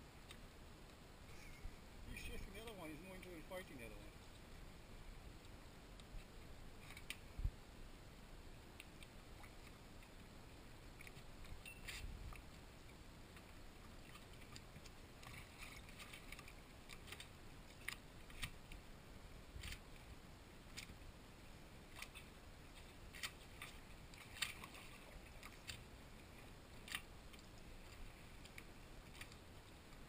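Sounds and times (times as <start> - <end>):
faint low rumble: 0.0 - 30.0
light sharp ticks: 5.4 - 7.3, 8.7 - 10.3, 26.8 - 30.0.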